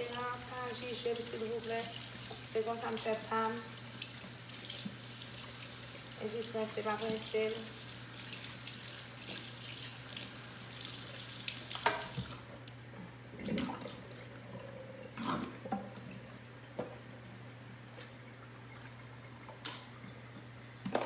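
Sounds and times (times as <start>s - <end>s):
faucet running into sink: 0.0s - 12.5s
low steady hum: 0.0s - 21.0s.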